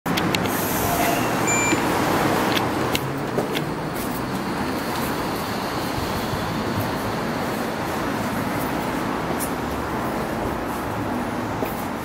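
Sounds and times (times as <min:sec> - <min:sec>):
road traffic noise: 0:00.0 - 0:12.0
short high beep: 0:01.0 - 0:01.8.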